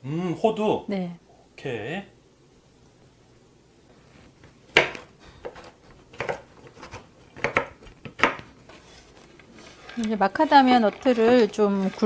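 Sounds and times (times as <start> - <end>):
knife chopping on wooden board: 4.7 - 8.5.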